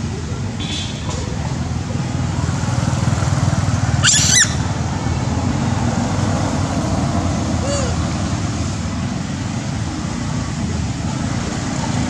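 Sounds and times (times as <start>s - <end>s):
road traffic rumble: 0.0s - 12.0s
squeaky high-pitched animal call: 4.0s - 4.7s.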